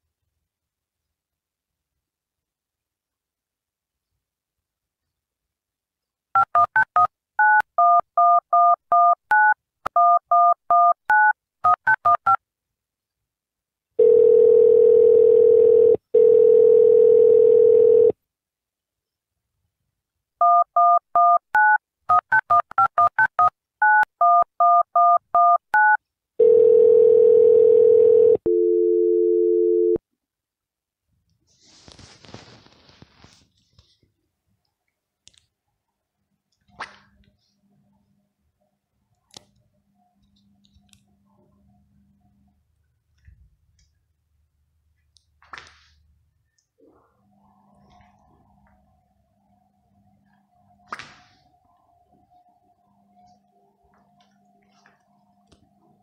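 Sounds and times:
telephone ringing tones: 14.0s - 18.2s, 23.8s - 30.0s.

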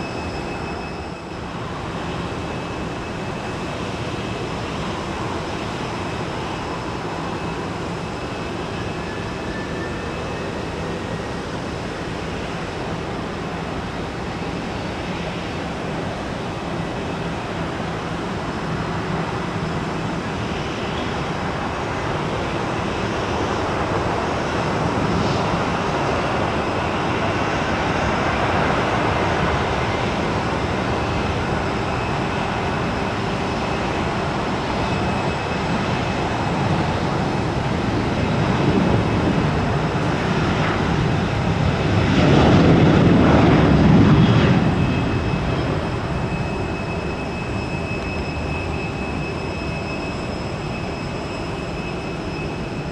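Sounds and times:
jet engines rushing: 0.0s - 52.9s.

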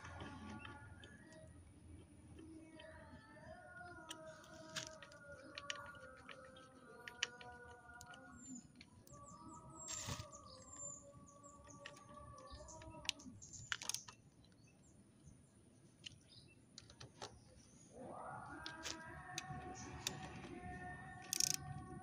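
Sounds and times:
birds chirping: 0.0s - 22.0s
screwdriver clicking on bolts: 12.6s - 14.2s, 21.2s - 21.6s.

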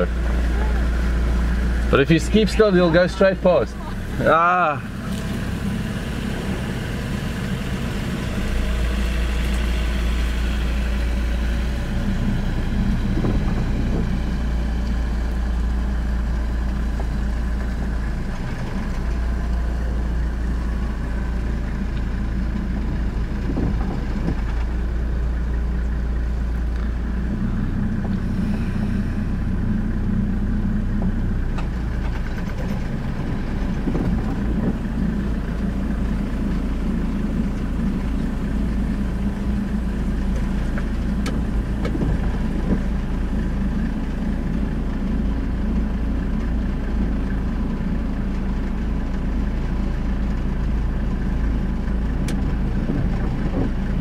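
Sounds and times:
vehicle engine at low revs: 0.0s - 54.0s.

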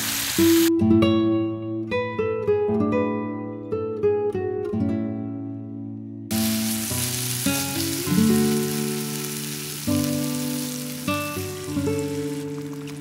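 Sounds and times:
food sizzling in a wok: 0.0s - 0.7s, 6.3s - 13.0s
plucked acoustic guitar music: 0.4s - 13.0s.

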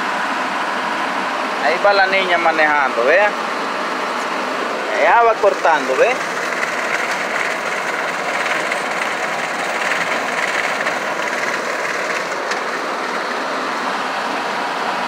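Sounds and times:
tractor engine under load: 4.2s - 14.9s
rotary cutter shredding stalks: 4.8s - 13.5s.

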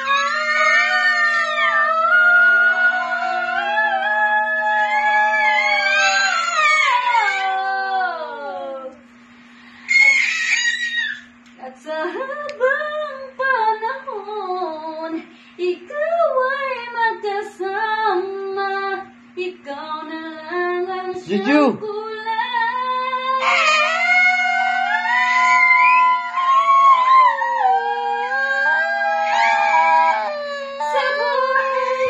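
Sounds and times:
faint steady hum: 0.0s - 32.0s
baby singing: 23.4s - 32.0s
woman singing wordless notes: 26.2s - 32.0s.

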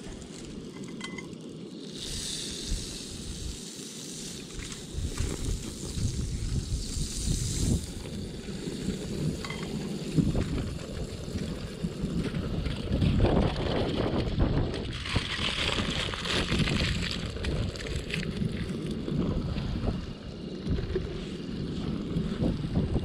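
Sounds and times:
high hiss: 0.0s - 12.2s
wind buffeting microphone: 4.5s - 23.0s.

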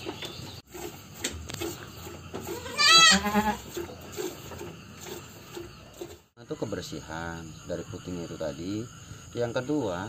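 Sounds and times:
goat bleating: 2.4s - 3.8s.

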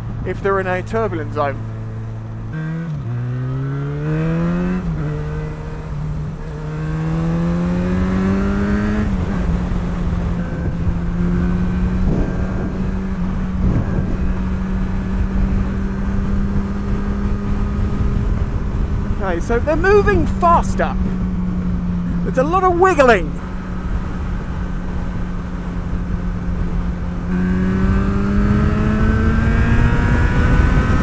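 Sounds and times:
motorcycle engine accelerating: 1.6s - 31.0s
wind noise: 8.0s - 22.3s, 25.6s - 31.0s.

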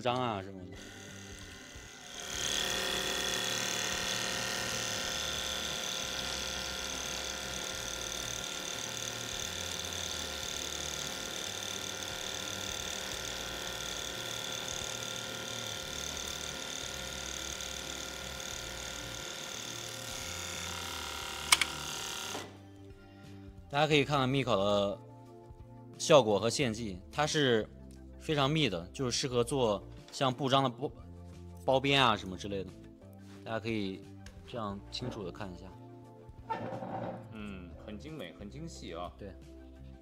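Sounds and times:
overlock sewing machine whirring: 0.8s - 22.6s.

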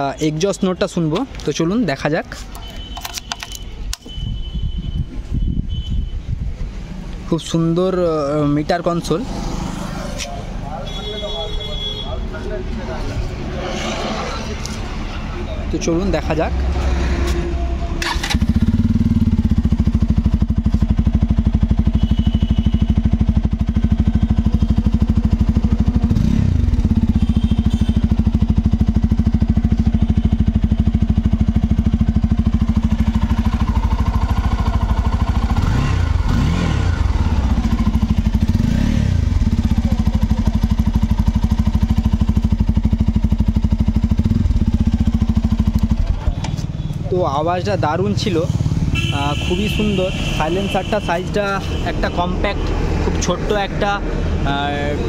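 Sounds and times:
motorcycle engine idling: 17.7s - 52.3s
motorcycle throttle blips: 18.0s - 47.5s.

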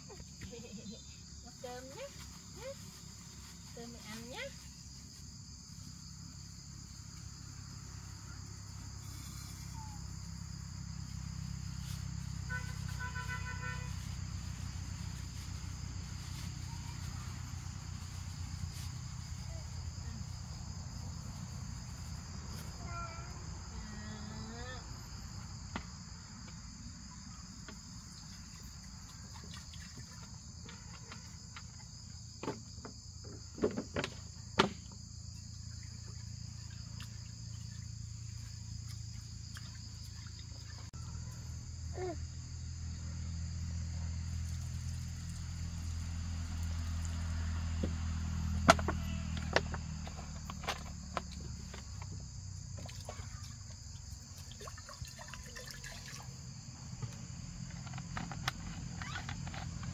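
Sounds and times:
insects droning: 0.0s - 59.9s.

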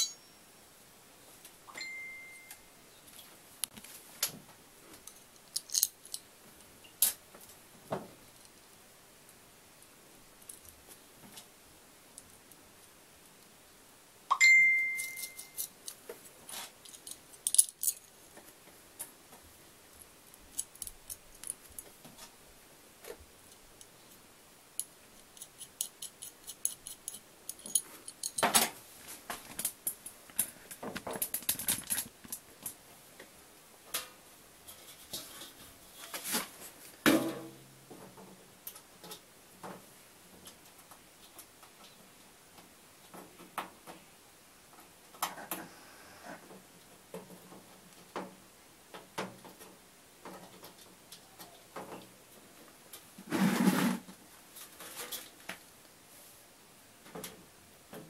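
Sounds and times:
metal parts clinking and rattling: 5.0s - 6.3s, 15.0s - 16.0s, 16.8s - 18.2s, 20.3s - 21.8s, 24.8s - 28.7s, 29.5s - 32.4s.

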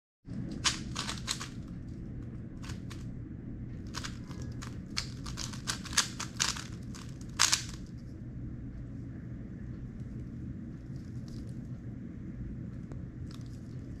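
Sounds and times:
steady low hum: 0.2s - 14.0s
plastic puzzle cube clicking: 0.6s - 1.6s, 3.9s - 7.8s.

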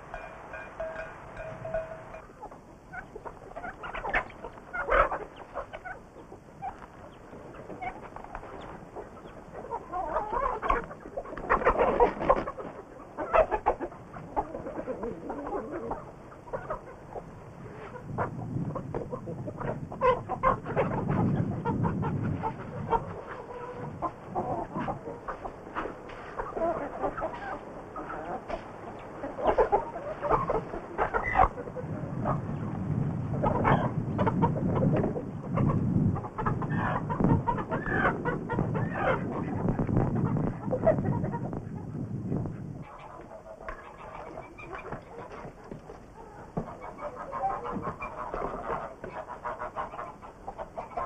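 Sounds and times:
chickens clucking and squawking: 0.0s - 51.0s.

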